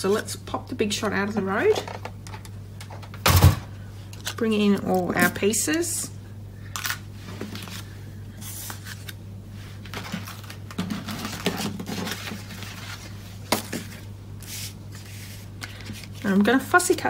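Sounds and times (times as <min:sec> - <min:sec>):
steady low hum: 0:00.0 - 0:17.0
paper rustling and scraping: 0:07.2 - 0:16.9.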